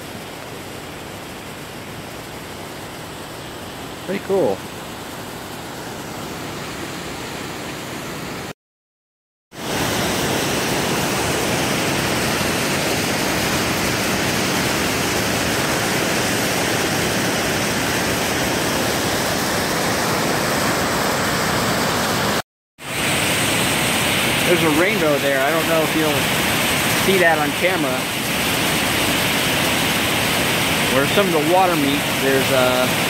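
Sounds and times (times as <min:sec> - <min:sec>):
water pouring over a spillway: 0:00.0 - 0:06.4, 0:09.6 - 0:33.0
churning water: 0:00.0 - 0:08.5, 0:09.5 - 0:33.0
waterfall rushing: 0:09.6 - 0:33.0.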